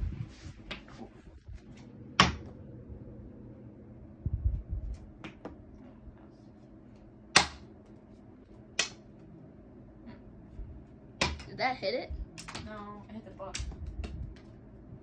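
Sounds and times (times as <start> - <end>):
dull low thumps: 0.0 - 1.6, 4.2 - 5.2, 13.5 - 15.0.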